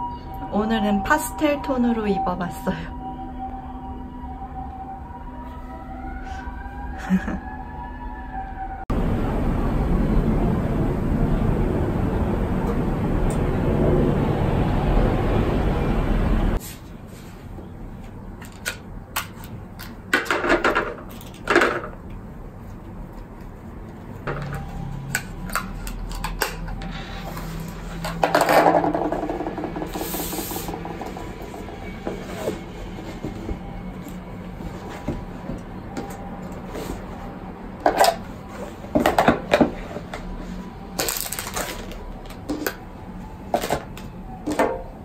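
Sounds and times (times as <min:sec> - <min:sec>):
steady rushing noise: 0:08.9 - 0:16.6.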